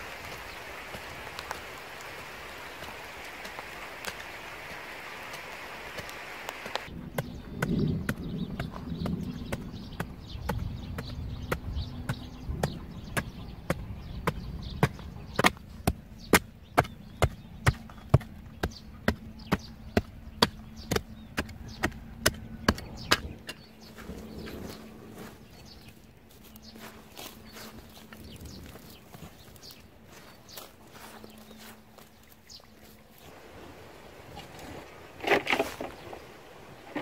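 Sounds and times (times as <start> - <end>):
hand scraping loose earth: 0.0 - 33.4, 34.3 - 37.0
digging tool chopping hard soil: 6.0 - 24.8.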